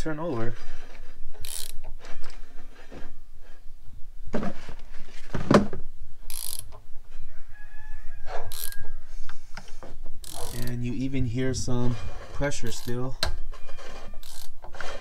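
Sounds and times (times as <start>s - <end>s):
ratchet pawl clicks: 1.4s - 1.9s, 6.3s - 6.8s, 8.5s - 8.8s, 10.2s - 10.8s, 12.7s - 13.0s, 14.2s - 14.6s.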